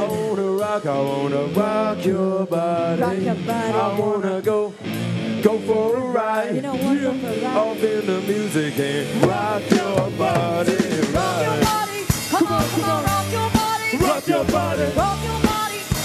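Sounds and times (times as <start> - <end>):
person singing: 0.0 - 4.8, 5.4 - 16.0
electric guitar: 0.0 - 16.0
drum kit hits: 9.0 - 16.0.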